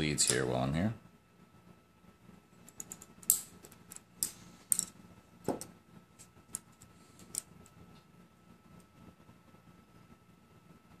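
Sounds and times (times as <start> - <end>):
small metal parts clicking: 2.6 - 5.0.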